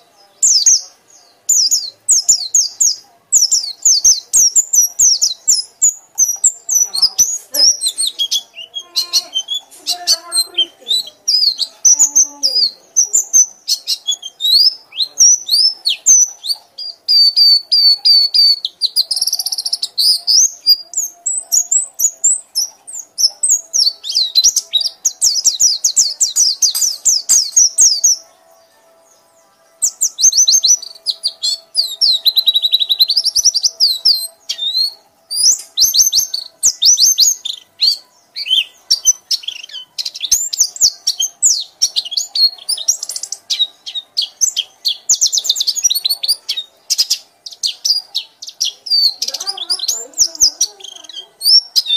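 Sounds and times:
songbird singing: 0:00.0 - 0:51.9.

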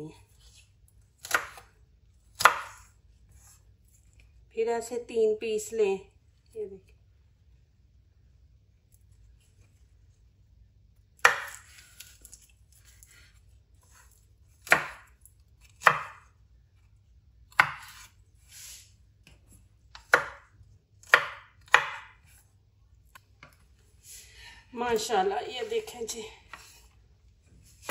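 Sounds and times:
knife chopping on wooden board: 0:01.2 - 0:01.7, 0:02.3 - 0:03.6, 0:11.2 - 0:12.2, 0:14.6 - 0:15.1, 0:15.7 - 0:16.3, 0:17.5 - 0:18.1, 0:19.9 - 0:22.4.

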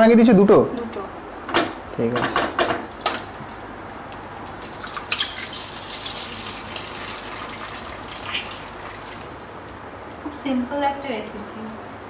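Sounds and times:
egg frying hiss: 0:02.9 - 0:09.6.

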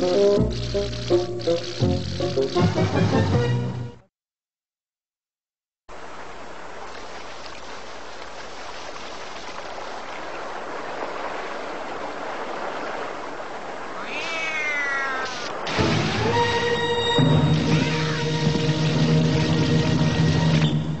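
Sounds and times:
cat-like cry falling in pitch: 0:14.0 - 0:15.5, 0:17.6 - 0:18.3.

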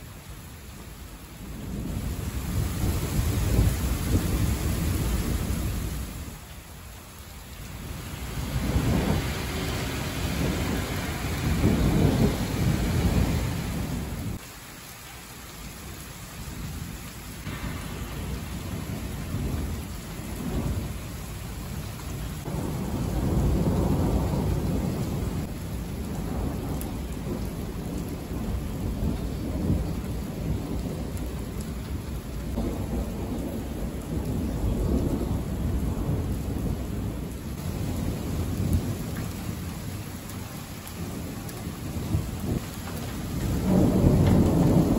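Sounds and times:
steady rain: 0:00.0 - 0:44.9
thunder rumbling: 0:01.4 - 0:06.5, 0:07.7 - 0:14.4, 0:16.5 - 0:44.9.

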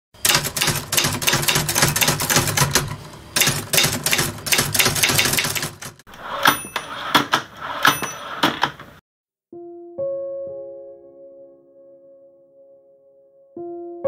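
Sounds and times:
typewriter key clacks: 0:00.3 - 0:09.0.

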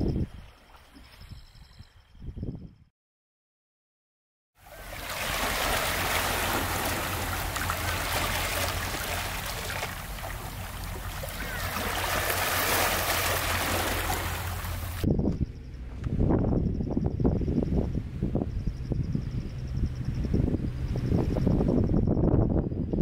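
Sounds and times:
waves lapping among rocks: 0:04.6 - 0:15.0.

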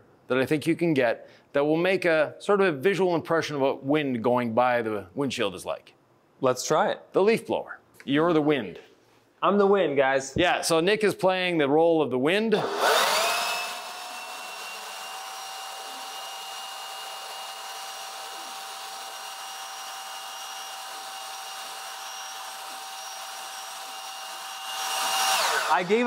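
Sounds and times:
leaf blower running: 0:12.6 - 0:26.0.

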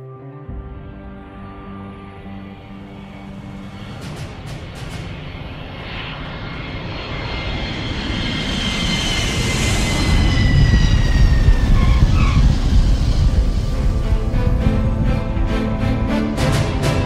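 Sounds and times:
airplane engine whine: 0:00.0 - 0:17.0
airplane rumble: 0:00.5 - 0:17.0.

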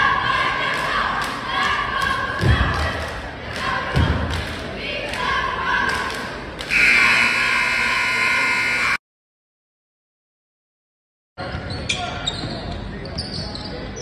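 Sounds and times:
hall chatter: 0:00.0 - 0:09.0
scoreboard horn blare: 0:06.7 - 0:09.0.

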